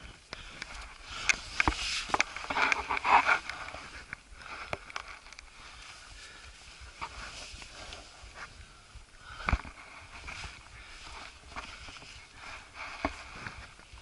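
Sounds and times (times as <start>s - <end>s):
rustling: 0.0s - 14.0s
hands and shoes scraping rock: 1.2s - 5.8s.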